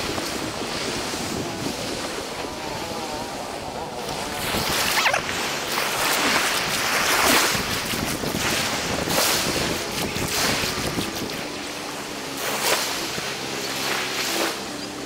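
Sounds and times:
wind buffeting microphone: 0.0s - 13.7s
waves washing in: 0.0s - 15.0s.

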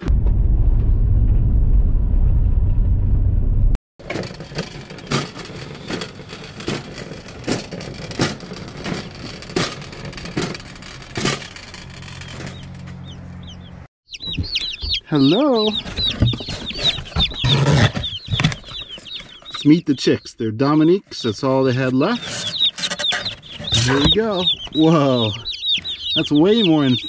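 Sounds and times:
vehicle engine and tyre rumble: 2.4s - 14.6s
shopping cart rattling: 4.0s - 13.1s, 22.0s - 25.3s.

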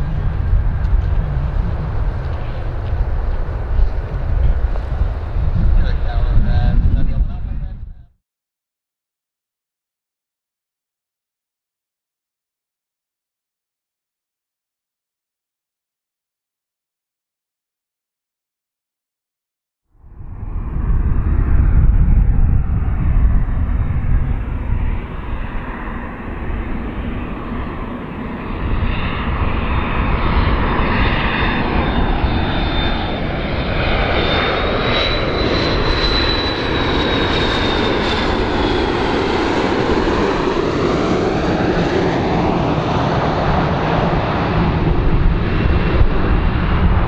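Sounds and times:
airliner jet engines roaring: 0.0s - 8.1s, 20.0s - 47.0s
high engine whine: 0.0s - 8.1s, 20.0s - 47.0s.

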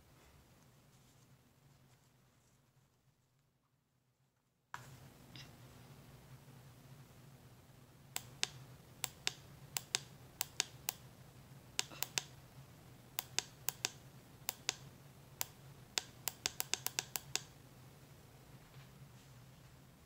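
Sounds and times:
ceiling fan humming: 4.8s - 20.0s
remote buttons clicking: 8.2s - 11.1s, 11.8s - 12.4s, 13.2s - 17.6s.

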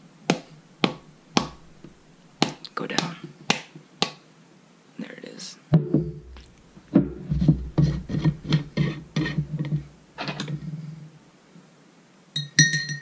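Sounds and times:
plastic lid rasping on glass jar: 7.3s - 9.9s.

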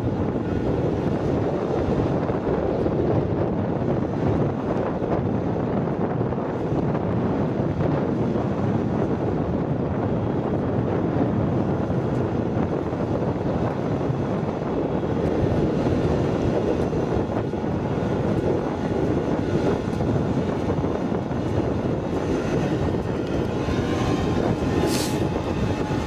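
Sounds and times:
engine running steadily: 0.0s - 26.0s
wind noise on microphone: 0.0s - 26.0s.

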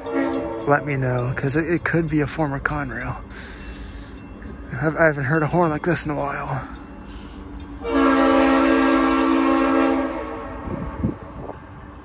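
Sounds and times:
locomotive air horn chord: 0.0s - 0.9s, 7.8s - 11.2s.

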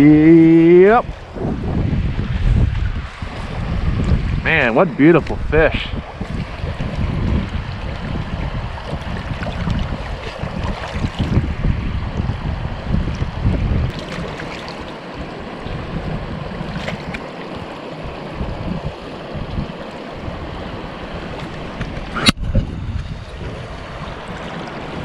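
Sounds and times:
stream rushing: 0.0s - 25.0s
wind buffeting microphone: 0.0s - 25.0s.

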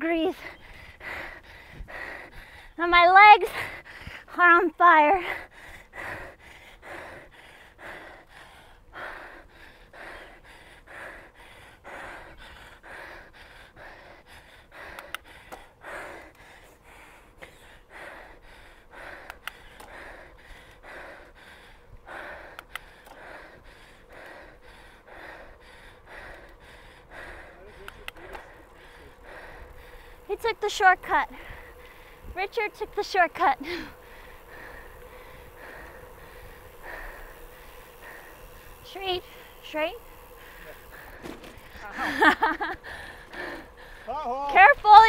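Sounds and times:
cyclist breathing hard: 0.0s - 45.0s
faint sharp clicks: 14.9s - 16.4s, 19.2s - 20.0s, 22.5s - 23.2s, 26.3s - 26.6s, 27.8s - 28.6s.

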